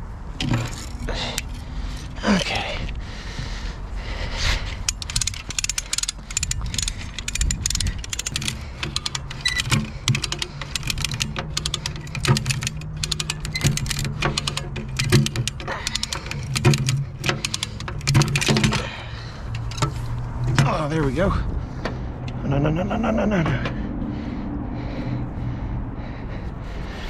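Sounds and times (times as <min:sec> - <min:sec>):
ratchet metallic clicks: 0:04.8 - 0:21.0.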